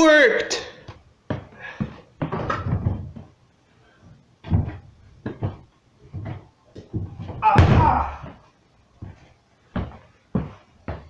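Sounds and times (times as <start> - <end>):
clothes rustling: 0.9 - 11.0
dull knocks and thumps: 1.3 - 3.4, 4.4 - 8.4.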